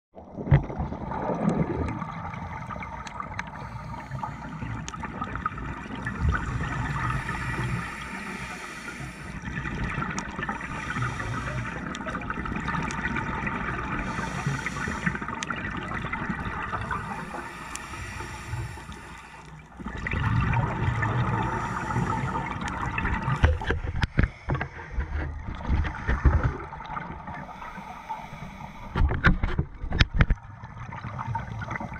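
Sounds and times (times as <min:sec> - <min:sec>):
scuba regulator breathing: 0:02.3 - 0:04.9, 0:06.0 - 0:09.5, 0:10.4 - 0:12.0, 0:13.9 - 0:15.4, 0:16.7 - 0:19.7, 0:21.1 - 0:25.3, 0:27.4 - 0:29.2
exhaust bubbles surging: 0:19.8 - 0:23.6.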